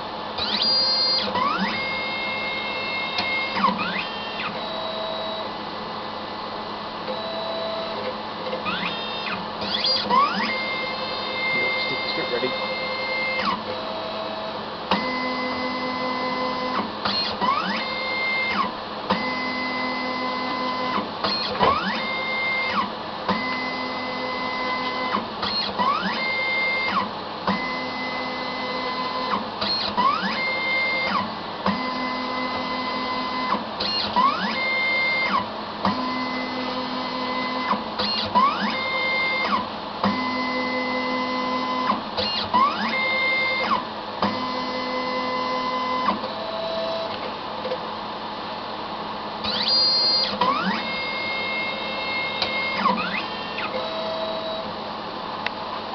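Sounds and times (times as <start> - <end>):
robot motors whining: 0.4 - 5.4, 7.2 - 22.9, 49.4 - 54.6
motor clicks: 49.4 - 50.8, 52.3 - 53.8.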